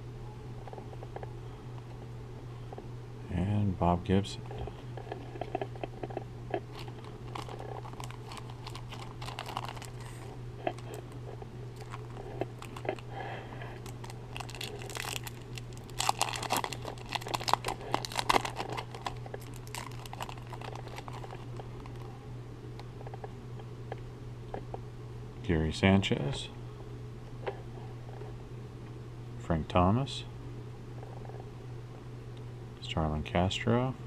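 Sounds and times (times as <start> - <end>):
low hum: 0.0 - 25.7
foil wrapper tearing and crinkling: 6.7 - 13.2, 13.8 - 22.2.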